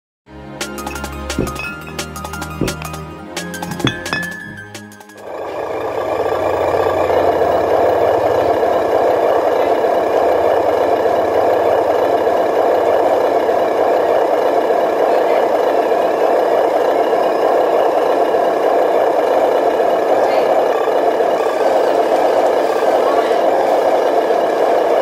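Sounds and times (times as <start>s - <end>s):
toy truck motor droning: 5.2s - 25.0s.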